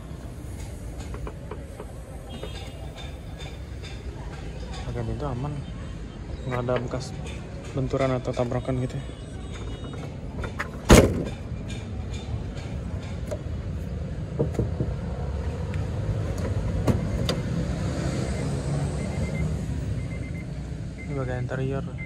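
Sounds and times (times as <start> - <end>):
car engines idling: 0.0 - 17.6.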